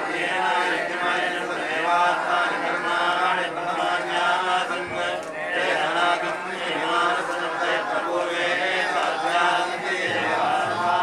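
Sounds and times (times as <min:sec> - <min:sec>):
priests chanting mantras: 0:00.0 - 0:11.0.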